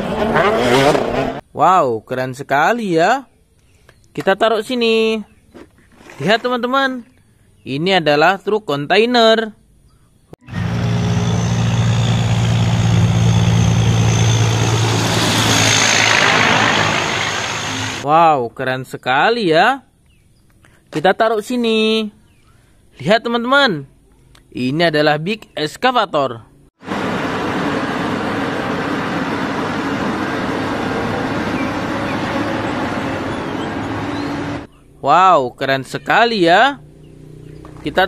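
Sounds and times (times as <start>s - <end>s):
diesel truck engine: 10.4s - 18.0s, 26.8s - 34.7s
faint high whine: 10.5s - 18.0s.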